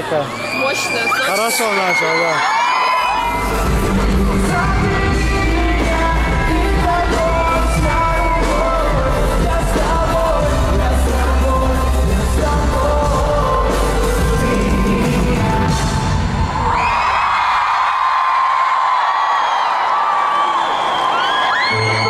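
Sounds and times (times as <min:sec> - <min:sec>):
person singing pop song: 0:03.1 - 0:16.8
heavy bass beat: 0:03.2 - 0:16.4.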